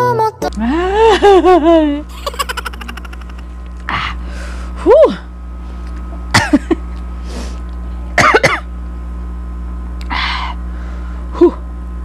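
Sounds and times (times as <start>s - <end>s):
woman clearing throat: 6.3s - 6.8s, 8.2s - 8.7s
woman coughing: 6.3s - 6.8s, 8.2s - 8.7s.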